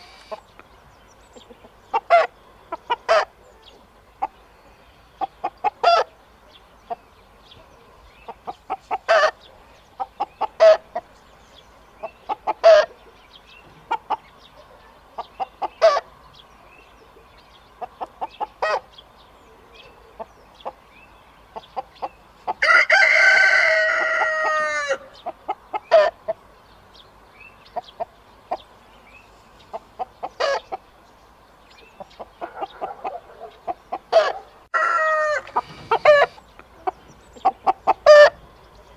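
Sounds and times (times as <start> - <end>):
chickens clucking: 0.0 - 31.1, 31.7 - 38.9
rooster crowing: 22.6 - 25.1, 34.2 - 36.3.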